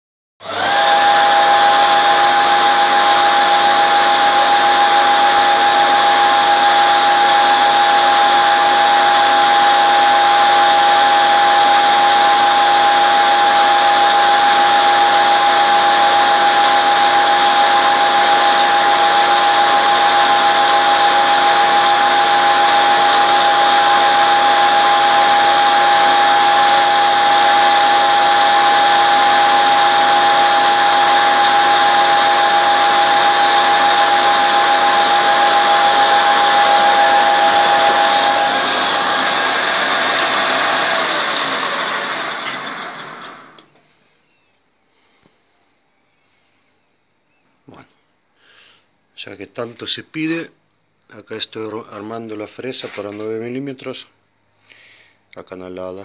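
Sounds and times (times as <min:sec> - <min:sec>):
metal lathe whining: 0:00.4 - 0:43.8.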